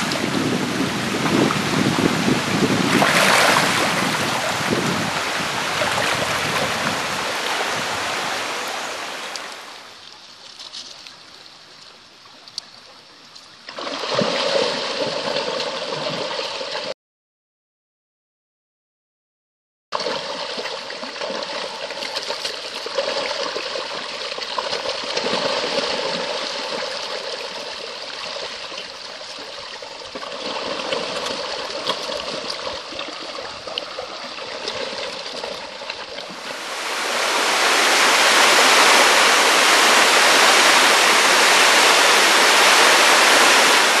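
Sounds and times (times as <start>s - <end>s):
waterfall rushing: 0.0s - 9.9s, 36.4s - 44.0s.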